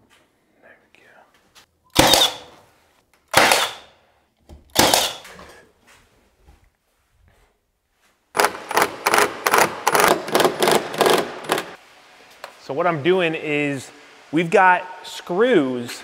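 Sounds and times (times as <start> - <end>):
nail gun firing: 1.9 - 2.5, 3.3 - 3.9, 4.7 - 5.2, 8.4 - 11.8.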